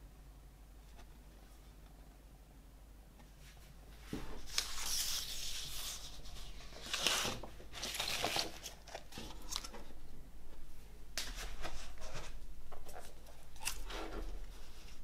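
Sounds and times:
paper rustling and sliding: 4.0 - 9.8.

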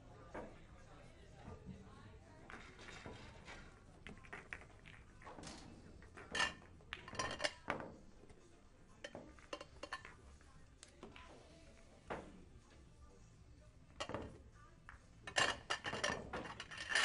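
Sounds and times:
billiard balls clacking: 2.4 - 8.3.

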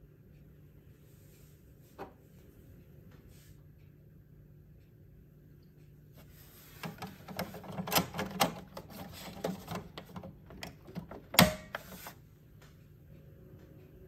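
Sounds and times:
plastic clicks and scrapes: 6.7 - 12.2.

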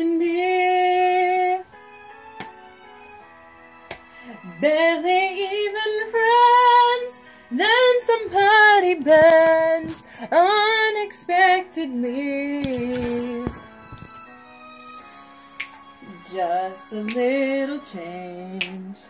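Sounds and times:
soft musical backing: 0.0 - 19.0
woman singing with vibrato: 4.3 - 13.5, 16.0 - 19.0.

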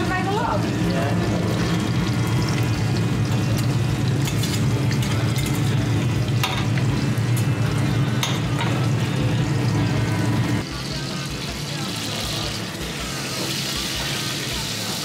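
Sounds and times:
fish sizzling in frying pans: 0.0 - 15.0
utensils clicking against pans: 2.5 - 7.5, 8.1 - 8.9.

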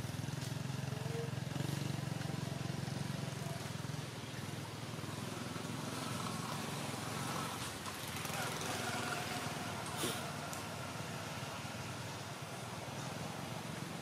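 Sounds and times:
engine droning: 0.0 - 14.0.

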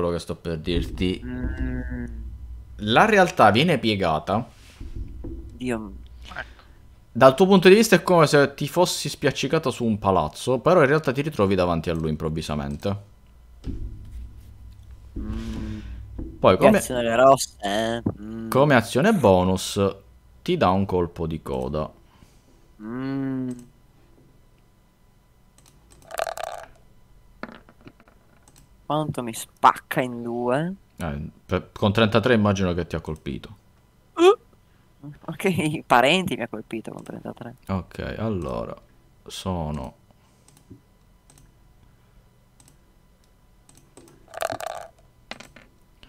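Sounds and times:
computer mouse clicks: 25.6 - 26.1, 28.4 - 28.7, 40.4 - 40.7, 41.3 - 41.5, 42.6 - 42.8, 43.7 - 44.2
virtual dice rolling clatter: 26.0 - 26.8, 27.4 - 28.5, 44.3 - 45.8.

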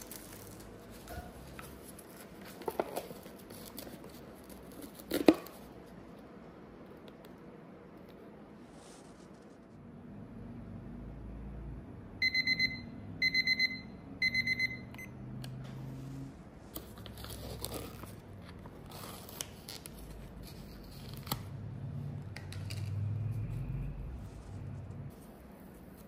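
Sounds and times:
paper lid crinkling: 0.0 - 5.6
kitchen timer beeping: 12.2 - 15.2.

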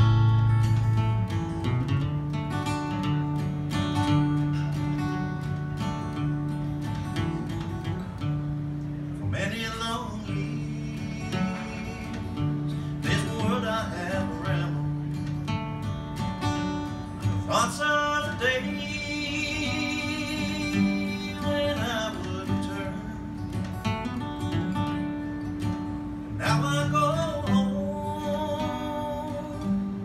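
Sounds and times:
acoustic guitar: 0.0 - 30.0
man singing: 9.2 - 15.4, 17.1 - 23.7, 26.3 - 30.0.

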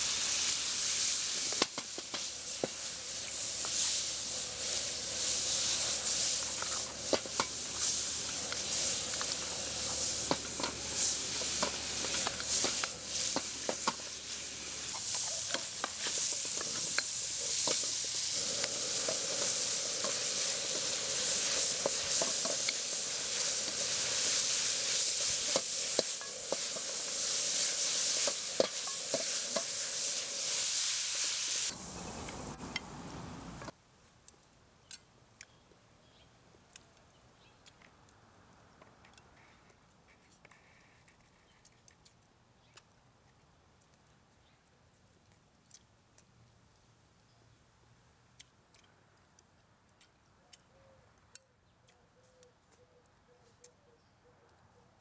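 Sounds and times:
food sizzling in a wok: 0.0 - 33.8.

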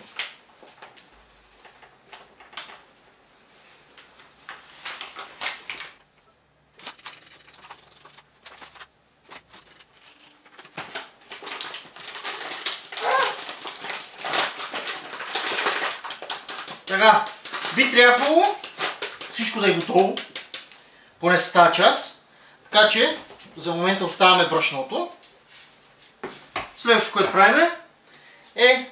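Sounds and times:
flour sifting through metal sieve: 6.8 - 20.6.

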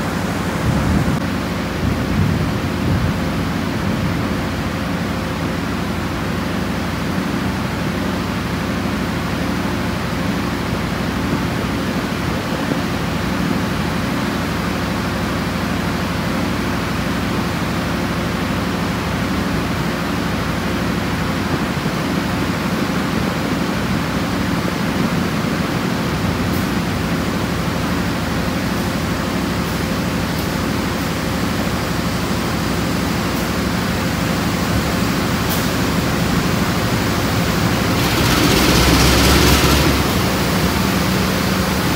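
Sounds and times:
dense rushing noise: 0.0 - 4.4, 33.6 - 41.9
locomotive engine hum: 0.0 - 41.9.

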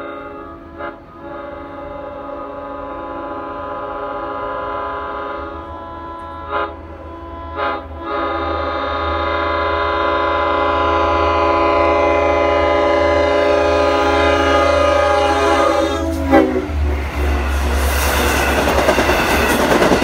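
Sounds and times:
train air horn chord: 0.0 - 18.3
locomotive low rumble: 12.7 - 20.0.

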